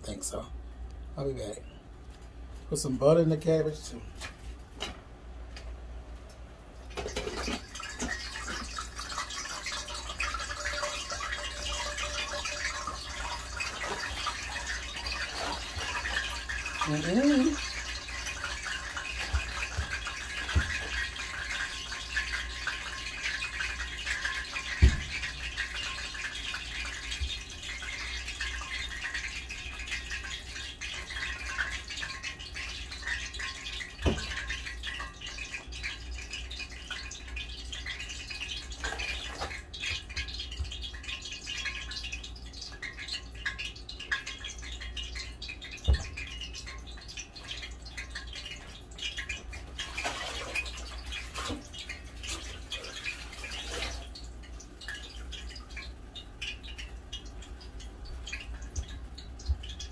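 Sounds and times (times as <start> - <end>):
pot simmering with bubbling crackle: 3.9 - 59.9.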